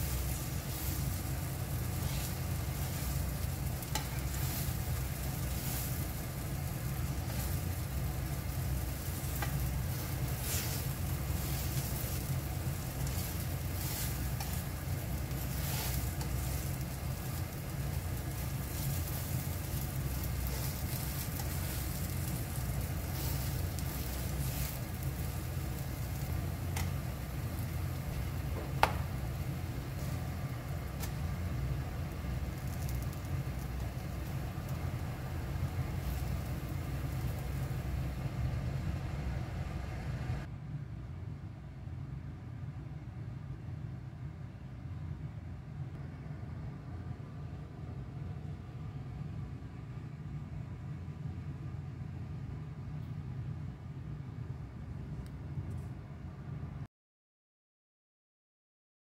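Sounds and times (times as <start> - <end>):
spatula working in a pan: 0.0 - 38.5
pancakes sizzling in a frying pan: 0.0 - 38.8.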